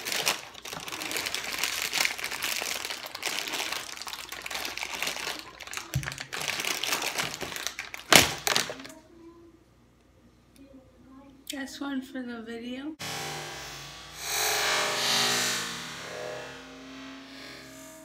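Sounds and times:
plastic bag crinkling: 0.0s - 9.0s
bag bursting with pop: 8.0s - 8.8s.

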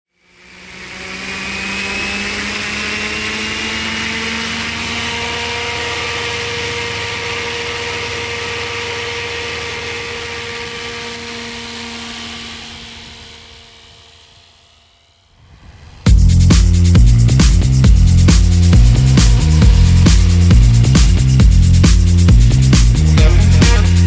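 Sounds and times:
model helicopter whine and rotor: 0.1s - 24.0s.

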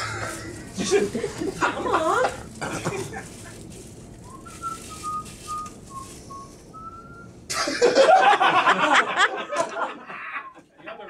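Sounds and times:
person whistling a tune: 4.3s - 7.3s.

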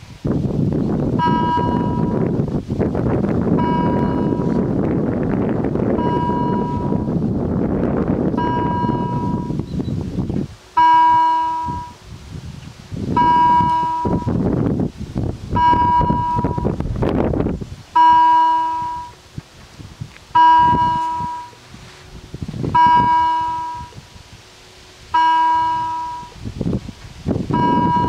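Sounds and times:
low rumbling noise: 0.0s - 28.0s
level crossing bell ringing: 1.2s - 2.2s, 3.6s - 4.5s, 6.0s - 7.0s, 8.4s - 9.6s, 10.8s - 12.0s, 13.2s - 14.3s, 15.6s - 16.6s, 18.0s - 19.2s, 20.4s - 21.6s, 22.8s - 24.0s, 25.2s - 26.4s, 27.6s - 28.0s.

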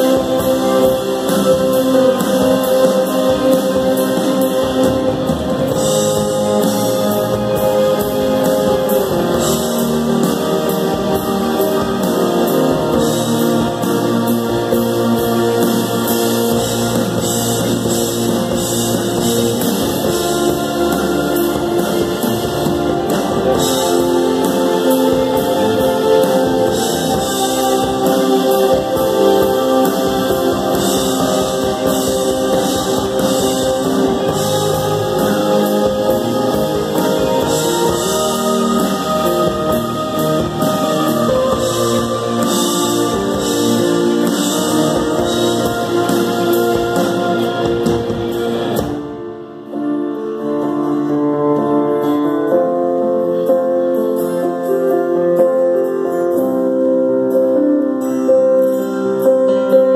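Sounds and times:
live band playing: 0.0s - 59.9s.

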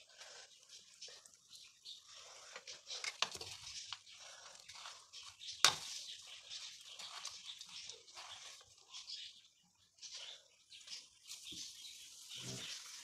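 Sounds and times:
crunchy scraping in bowl: 2.1s - 9.3s.

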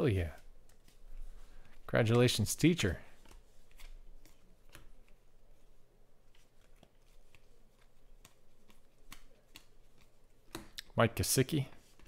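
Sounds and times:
cards clicking and sliding: 6.3s - 10.8s.

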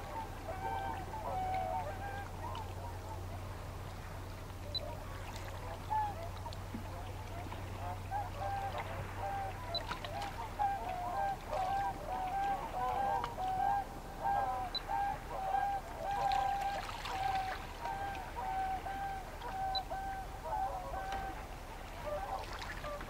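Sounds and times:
waterbirds honking: 0.0s - 23.0s.

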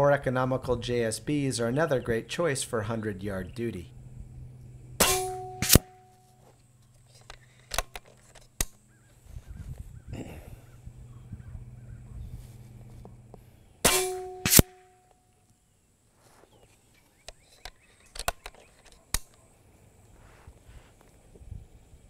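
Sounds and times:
air rifle shot: 5.0s - 6.1s, 13.8s - 14.9s
sharp crack: 5.0s - 6.2s, 13.8s - 15.2s.

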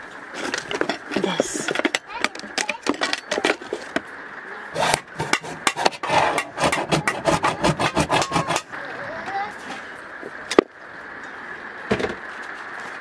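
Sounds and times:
scraper blade scraping rubber: 4.8s - 8.7s.

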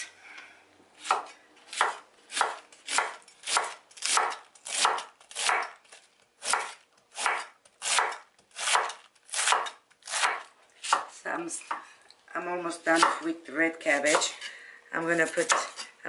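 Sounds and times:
knife slicing cabbage on wooden board: 1.0s - 11.8s.

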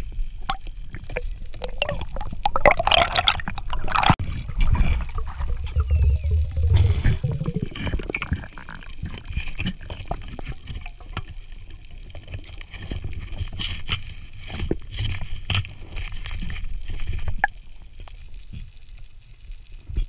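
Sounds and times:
underwater rush of water: 0.0s - 18.3s
underwater clicks and knocks: 0.4s - 11.4s.

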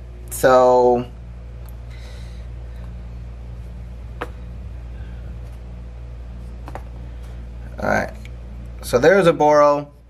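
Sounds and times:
low hum: 0.0s - 10.0s
handling noise: 6.3s - 7.4s.

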